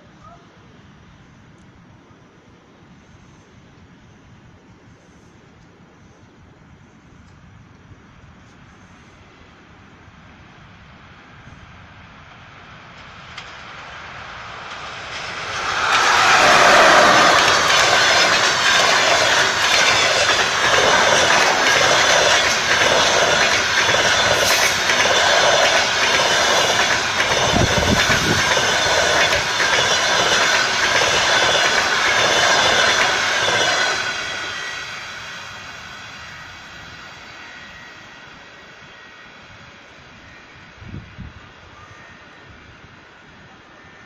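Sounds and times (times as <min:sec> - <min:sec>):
train wheels clattering over rail joints: 0:14.6 - 0:34.7.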